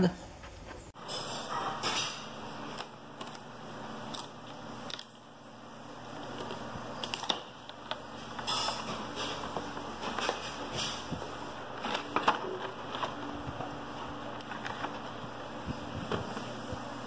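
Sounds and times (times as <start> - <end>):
cardboard rustling: 9.1 - 16.6.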